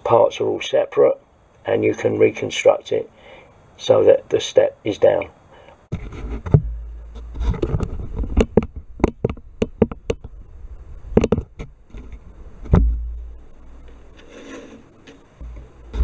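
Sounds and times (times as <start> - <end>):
faint rubbing: 5.9 - 8.8, 10.8 - 16.0
dull thump: 5.9 - 10.3, 11.1 - 13.4, 15.4 - 16.0.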